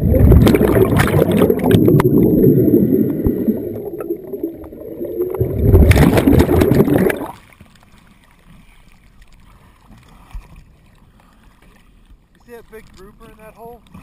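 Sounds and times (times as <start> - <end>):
underwater scuba bubbles rushing: 0.0 - 7.6
waves: 0.0 - 14.0.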